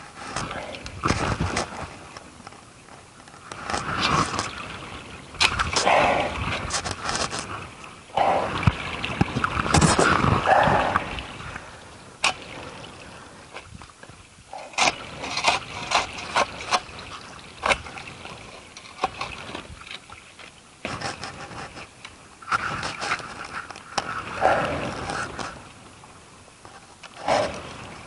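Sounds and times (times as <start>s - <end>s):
tool scraping through soil: 14.6s - 16.9s.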